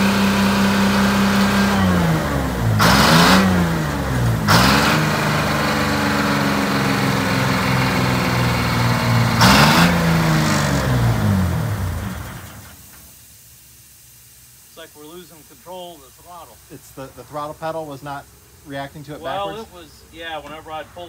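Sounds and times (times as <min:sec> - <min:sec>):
diesel engine revving: 0:00.0 - 0:13.0.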